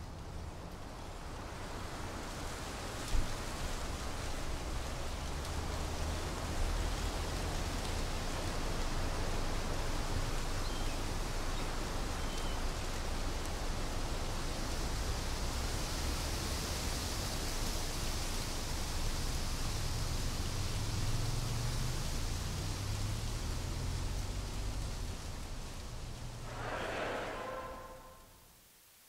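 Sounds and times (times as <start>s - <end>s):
low rumble: 26.4s - 28.3s.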